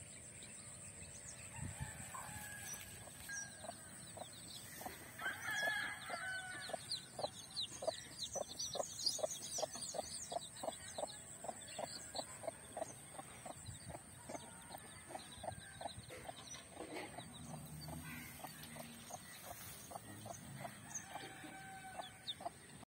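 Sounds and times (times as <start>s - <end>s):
chicks peeping: 2.8s - 22.8s.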